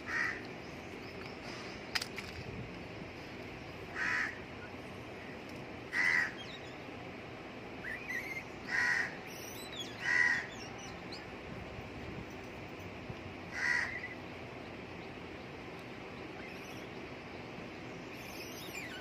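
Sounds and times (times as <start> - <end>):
small birds chirping: 0.0 - 19.0
crow cawing: 0.1 - 0.4, 3.9 - 4.4, 5.9 - 6.4, 8.7 - 9.2, 10.0 - 10.5, 13.5 - 14.0.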